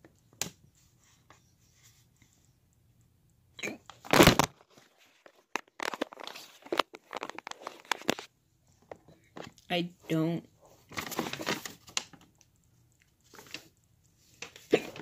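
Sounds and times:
paper crinkling and rustling: 4.0s - 8.3s, 10.7s - 12.5s, 13.2s - 15.0s.

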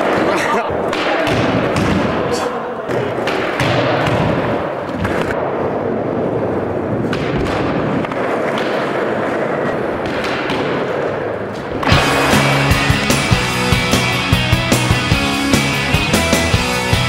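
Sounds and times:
skateboard wheels rolling on concrete: 0.0s - 1.0s, 2.8s - 17.0s
loud rock music: 11.8s - 17.0s.

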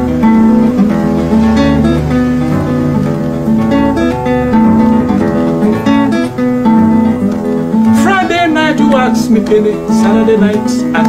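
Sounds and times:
acoustic guitar playing: 0.0s - 11.0s
person singing: 7.8s - 11.0s.

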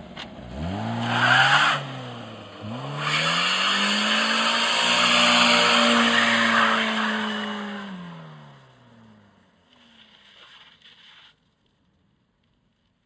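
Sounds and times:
car engine revving hard: 0.0s - 8.7s
tyres squealing on asphalt: 0.9s - 2.0s, 2.7s - 8.1s.

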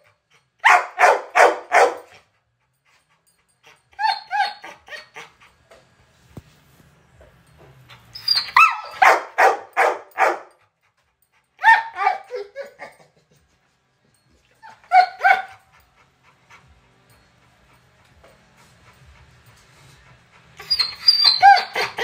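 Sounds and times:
dog crying high-pitched: 0.6s - 2.2s, 3.6s - 5.5s, 8.2s - 10.6s, 11.6s - 13.5s, 14.5s - 15.8s, 20.6s - 22.0s.

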